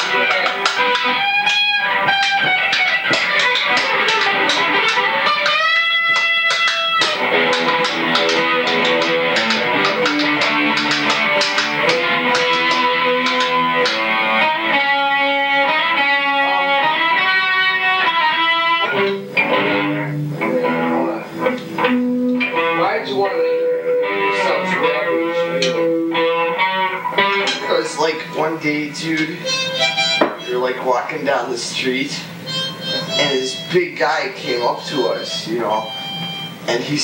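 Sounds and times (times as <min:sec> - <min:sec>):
electric guitar lead line: 0:00.0 - 0:37.0.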